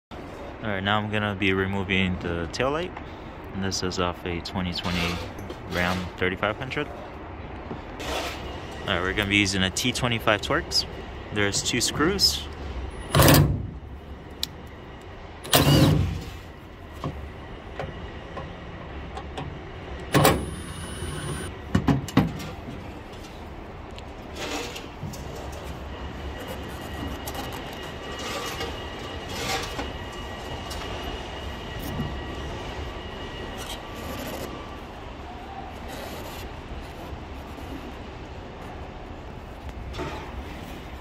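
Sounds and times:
impact driver running: 20.2 - 21.5.

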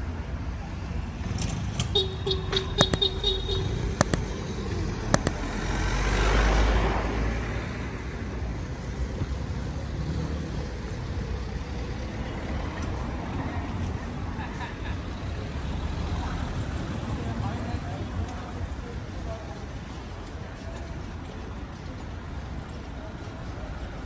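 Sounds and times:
traffic hum: 0.0 - 24.0
sharp clicks: 1.4 - 5.6
vehicle passing close by: 1.5 - 8.4.

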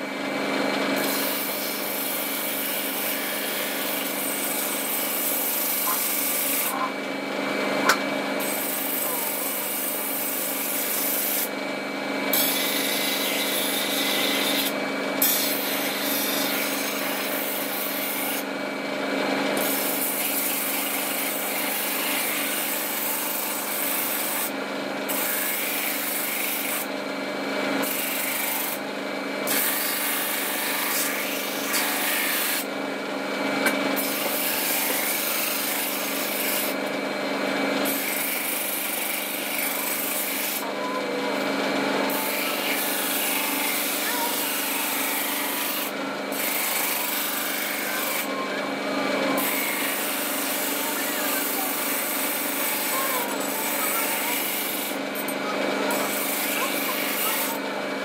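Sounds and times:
sanding machine hum: 0.0 - 58.0.

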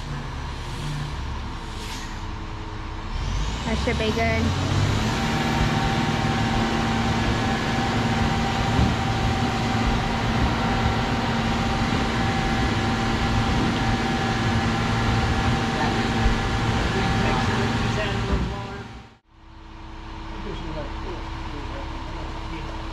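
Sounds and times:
concrete truck engine drone: 0.0 - 22.9
high whine: 0.0 - 22.9.

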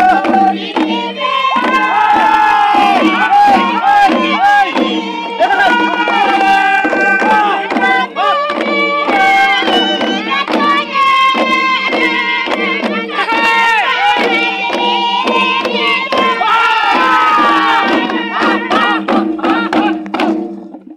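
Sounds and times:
men singing a dance chant: 0.0 - 20.2
wooden hand drums beating: 0.0 - 20.9.

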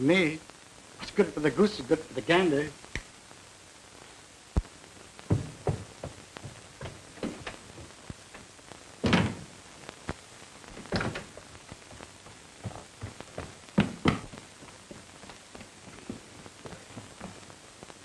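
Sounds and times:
dull thuds and knocks: 5.3 - 7.6, 12.6 - 14.4.

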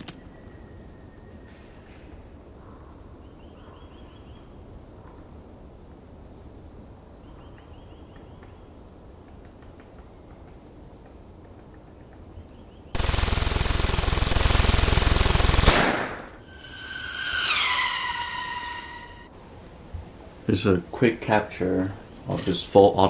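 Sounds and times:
faint bird chirps: 0.1 - 5.3
rapid automatic gunfire: 13.0 - 16.2
electronic tone sliding down: 16.3 - 19.3.

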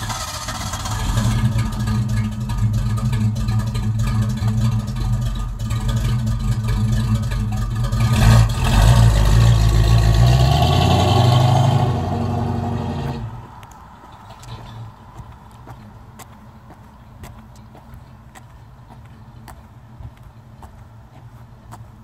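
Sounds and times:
car driving off: 0.0 - 15.9
car engine idling and revving: 0.0 - 22.0.

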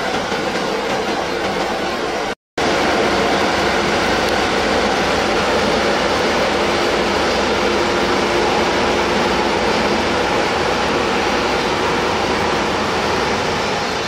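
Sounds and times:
street sweeper truck running: 2.6 - 14.0.

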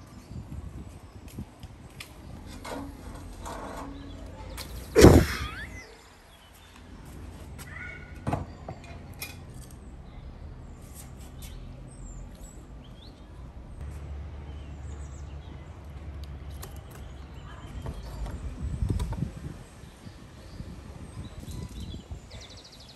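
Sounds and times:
sharp knock: 5.0 - 5.6.

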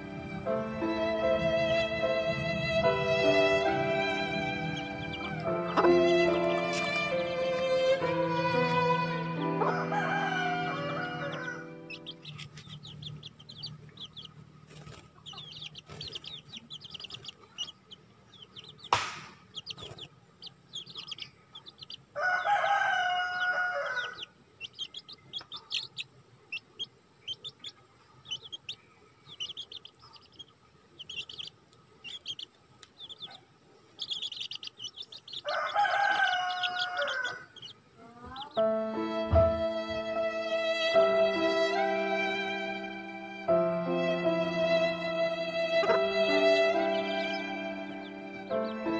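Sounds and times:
music: 0.0 - 13.6, 38.5 - 48.9
chicks peeping: 0.0 - 40.3, 45.6 - 48.9
rooster crowing: 9.4 - 12.0, 22.2 - 24.3, 35.3 - 38.5.

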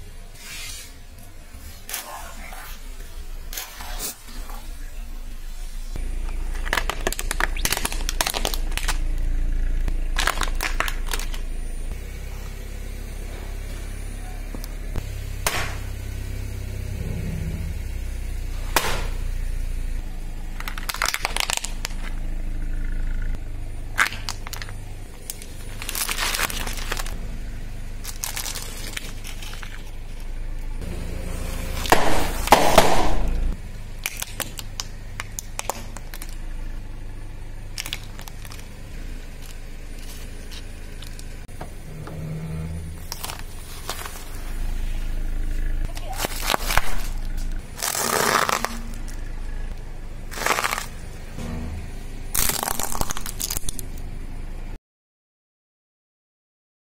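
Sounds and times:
tyre low rumble: 0.0 - 54.8
objects cracking and crunching: 6.2 - 11.5, 20.6 - 22.2, 23.9 - 27.2, 28.0 - 30.3, 34.0 - 36.4, 37.7 - 41.3, 43.0 - 45.0, 45.6 - 51.1, 52.3 - 54.0.

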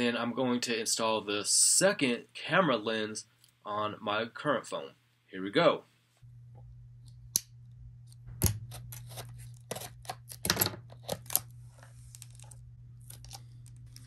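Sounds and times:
low hum: 6.2 - 14.0.

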